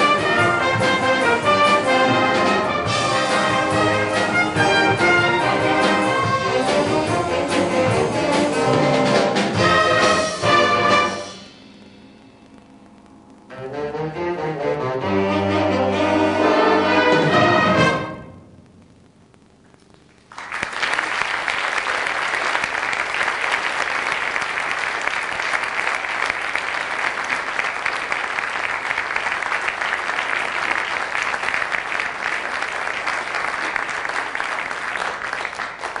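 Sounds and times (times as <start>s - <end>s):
audience applause: 20.0s - 36.0s.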